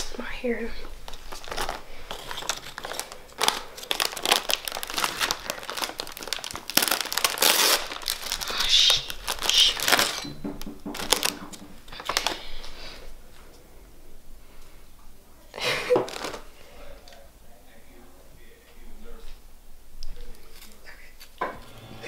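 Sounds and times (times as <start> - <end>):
plastic package crinkling: 0.8 - 12.7, 15.8 - 16.6.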